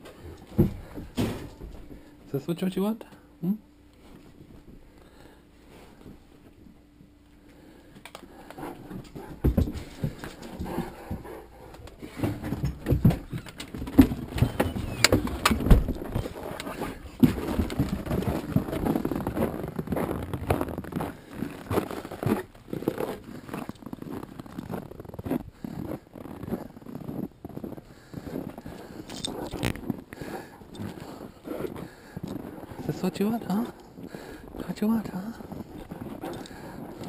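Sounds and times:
footsteps crunching in snow: 0:16.0 - 0:37.0.

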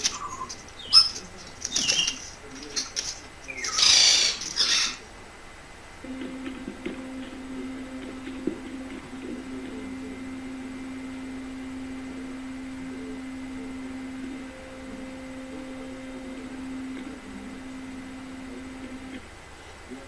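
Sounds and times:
low humming tone: 0:06.0 - 0:19.4.

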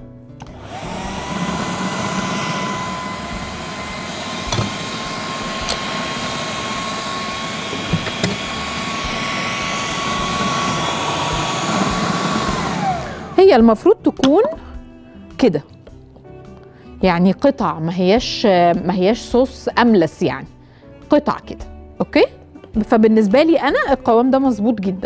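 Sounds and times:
food processor motor whining: 0:00.4 - 0:13.6.

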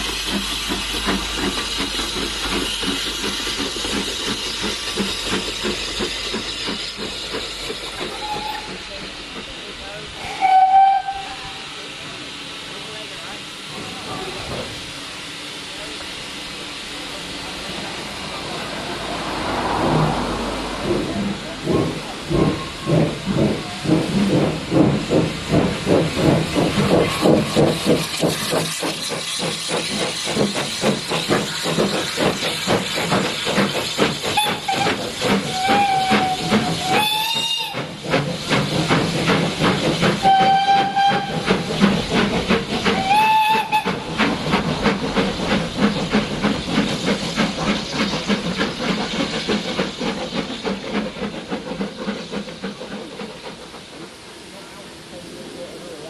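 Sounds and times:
steam hissing: 0:00.0 - 0:56.0
steam locomotive exhaust beating: 0:00.0 - 0:56.0
steam whistle blasts: 0:08.1 - 0:08.7, 0:10.2 - 0:11.7, 0:34.3 - 0:37.9, 0:40.2 - 0:41.6, 0:42.9 - 0:44.0.

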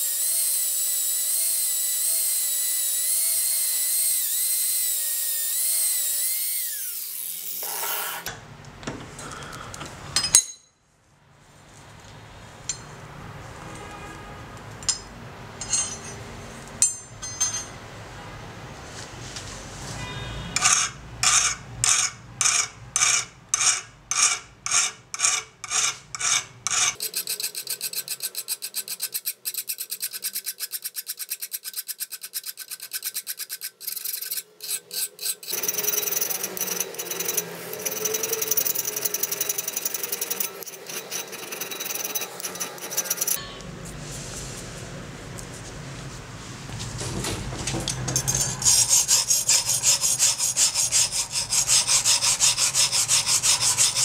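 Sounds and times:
file scraping steel blade: 0:00.0 - 0:08.3, 0:14.9 - 0:16.2, 0:20.6 - 0:43.6, 0:48.1 - 0:54.0.

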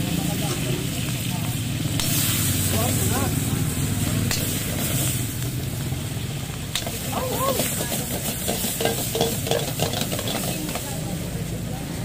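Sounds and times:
gas burner rushing: 0:00.0 - 0:11.6
food sizzling in a wok: 0:00.0 - 0:12.0
metal spatula scraping a pan: 0:06.7 - 0:11.0.

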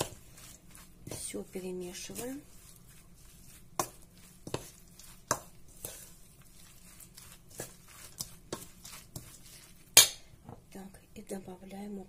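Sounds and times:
spoon stirring grated potato: 0:00.0 - 0:10.1.

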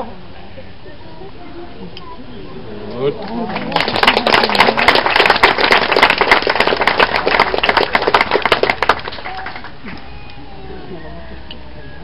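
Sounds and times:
audience clapping: 0:03.2 - 0:09.8.

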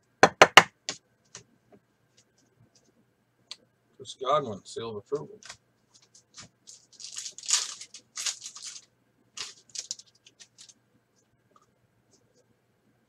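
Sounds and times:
cards shuffling: 0:05.4 - 0:10.8
plastic wrapper tearing: 0:05.4 - 0:10.8.

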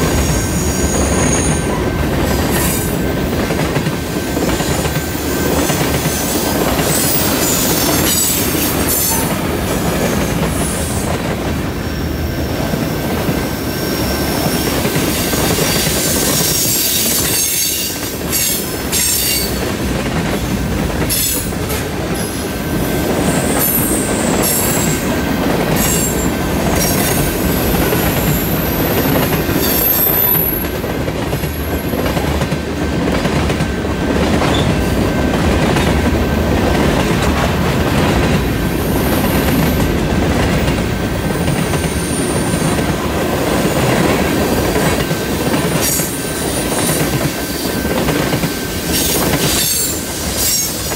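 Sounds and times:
steel wheels rolling on rail: 0:00.0 - 0:50.9
rail joint clicks: 0:14.6 - 0:50.9.

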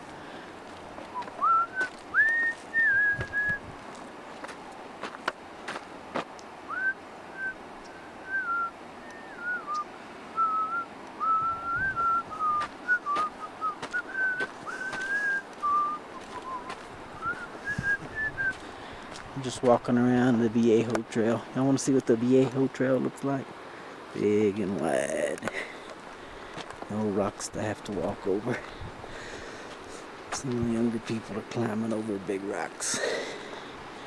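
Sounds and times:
person whistling a tune: 0:01.2 - 0:03.6, 0:08.2 - 0:09.8, 0:10.4 - 0:18.6.

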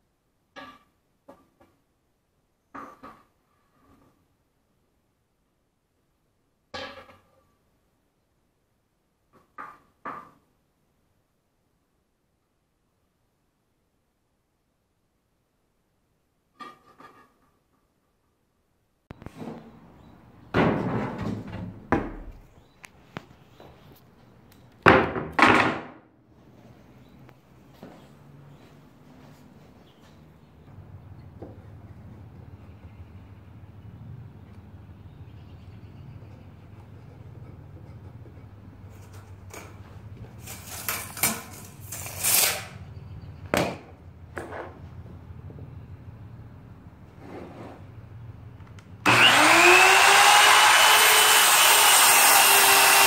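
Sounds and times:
wooden boards knocking and thudding: 0:20.5 - 0:22.4, 0:24.8 - 0:26.0, 0:43.5 - 0:44.8.

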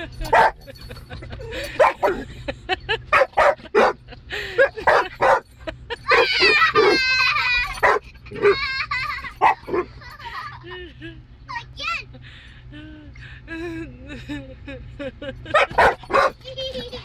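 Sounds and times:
dog whining: 0:06.1 - 0:08.7
dog barking in high yips: 0:07.8 - 0:08.6, 0:09.4 - 0:09.8, 0:15.6 - 0:16.4.

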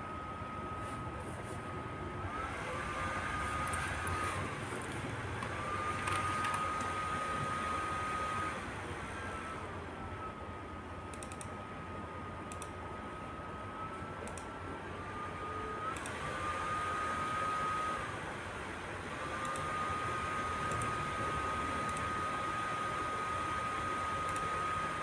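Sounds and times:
room noise: 0:00.0 - 0:10.3
computer mouse clicks: 0:03.6 - 0:04.2, 0:05.4 - 0:06.9, 0:11.1 - 0:11.5, 0:12.5 - 0:12.8, 0:14.2 - 0:14.5, 0:19.4 - 0:19.7, 0:20.7 - 0:20.9, 0:21.8 - 0:22.1, 0:24.3 - 0:24.5.

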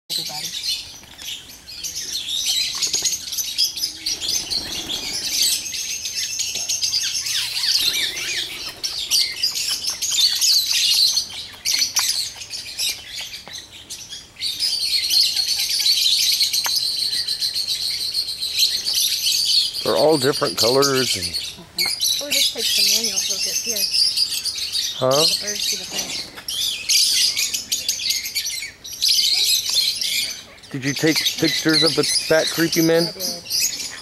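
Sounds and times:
parakeets chirping: 0:00.2 - 0:34.0.

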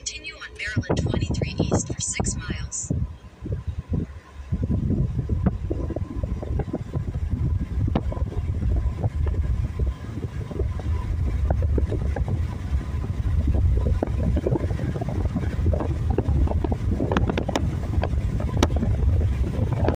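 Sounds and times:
road rumble from moving car: 0:00.0 - 0:20.0
wind buffeting microphone: 0:00.0 - 0:20.0.

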